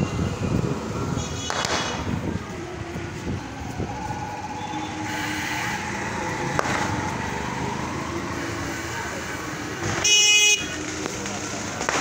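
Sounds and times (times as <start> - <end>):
street traffic: 0.0 - 12.0
sharp crack: 1.4 - 2.1, 10.8 - 12.0.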